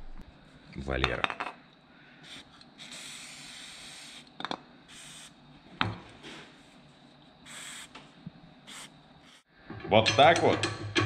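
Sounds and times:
aerosol spray hissing: 2.2 - 5.4, 7.4 - 8.0, 8.6 - 9.5
sharp metallic knocks: 9.7 - 11.0.

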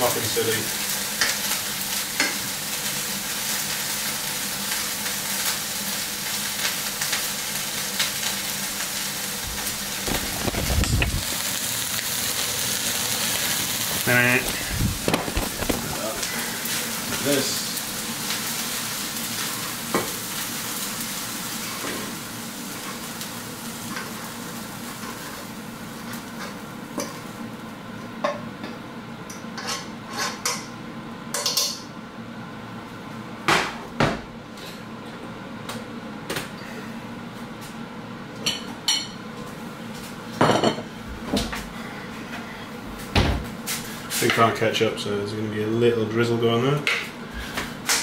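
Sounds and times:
food sizzling in frying pan: 0.0 - 27.9.

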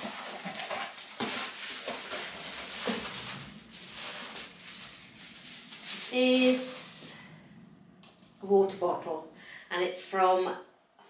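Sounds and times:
crinkles and knocks: 0.0 - 6.2
packing rustling: 0.0 - 6.9.

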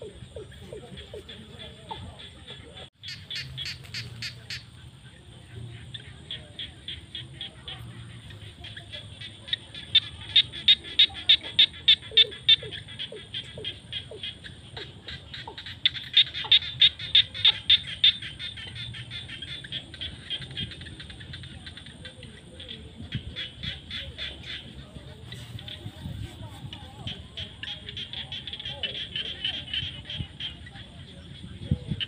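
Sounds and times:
frogs calling: 0.0 - 32.0
runs of quick frog calls: 0.0 - 32.0.

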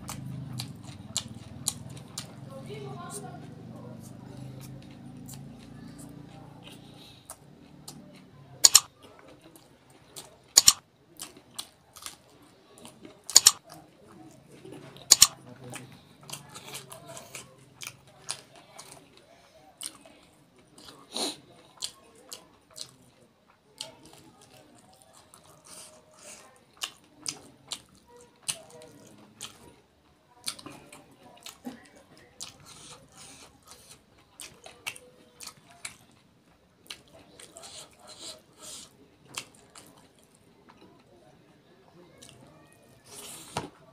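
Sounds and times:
wet chewing and lip smacking: 0.0 - 2.5, 4.0 - 14.4, 15.0 - 21.0, 21.7 - 29.7, 30.3 - 36.2, 36.8 - 41.1
crisp chewing clicks: 8.6 - 9.6, 10.2 - 12.2, 12.8 - 13.8, 15.1 - 15.8.

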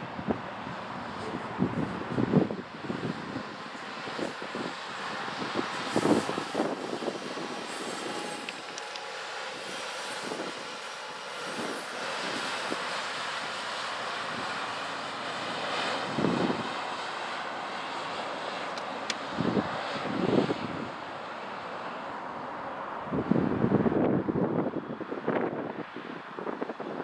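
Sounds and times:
wheels rolling on rails: 5.8 - 13.2.

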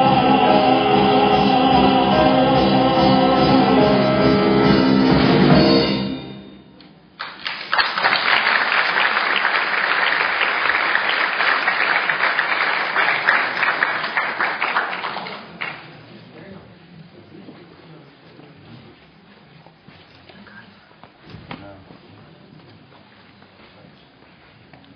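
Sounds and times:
live stage music final chord: 0.0 - 7.0
audience applause: 7.2 - 16.1.

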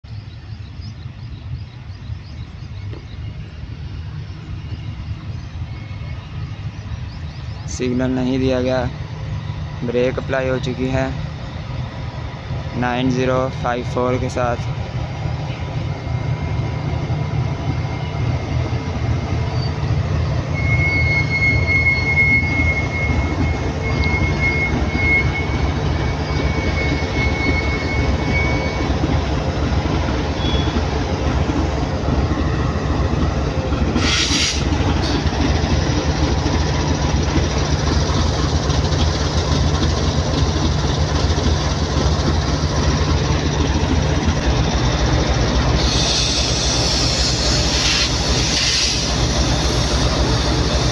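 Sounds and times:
diesel engine rumble: 0.1 - 50.9
brake squeal: 0.2 - 11.0, 19.4 - 29.2, 30.3 - 30.9, 34.0 - 35.3, 45.6 - 50.9
short hiss: 34.0 - 35.2, 45.8 - 50.9.

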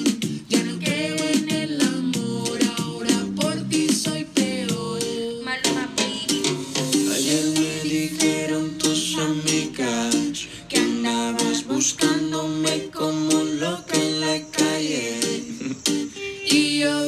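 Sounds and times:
song with plucked strings: 5.7 - 13.7.

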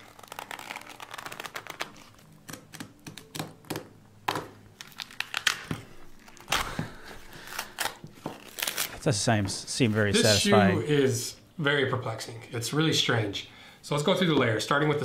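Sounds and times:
cardboard ripping and crackling: 0.0 - 3.3, 4.8 - 9.1.

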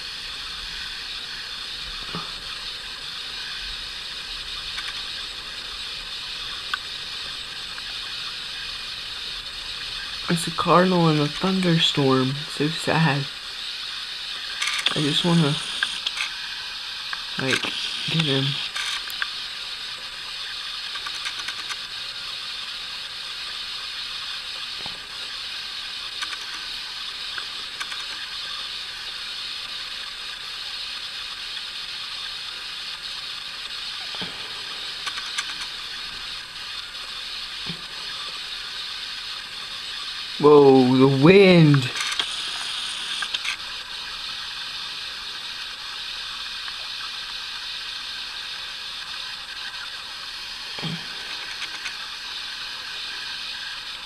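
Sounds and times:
heavy rain falling: 0.0 - 30.2, 31.4 - 54.0
faint ticks: 4.6 - 5.2, 6.6 - 6.9, 20.8 - 21.8, 26.1 - 26.7, 27.3 - 28.2.

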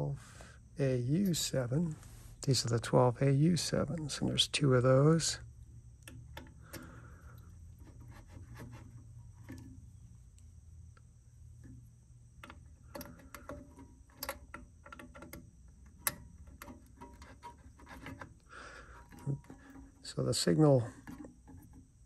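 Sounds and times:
vacuum tubes clicking into sockets: 6.0 - 9.8, 12.4 - 21.9.

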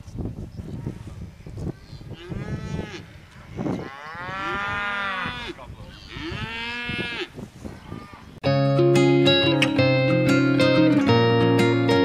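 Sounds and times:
cattle mooing: 1.9 - 8.3.

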